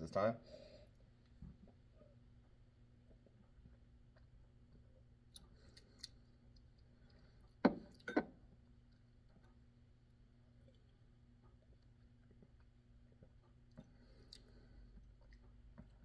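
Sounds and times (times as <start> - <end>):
glass set down on wooden table: 7.6 - 8.4.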